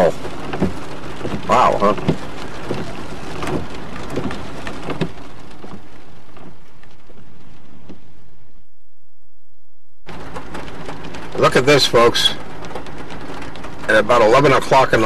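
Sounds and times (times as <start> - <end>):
tyres hissing on wet road: 0.0 - 7.0, 10.1 - 15.0
low car rumble: 0.0 - 15.0
sharp knocks: 0.4 - 5.9.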